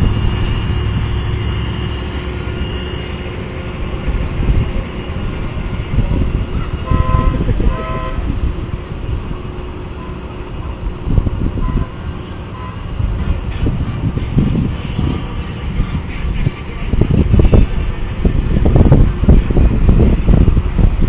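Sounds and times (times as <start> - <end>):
wind rumble on microphone: 0.0 - 2.5, 3.7 - 21.0
horn toots: 6.8 - 8.4.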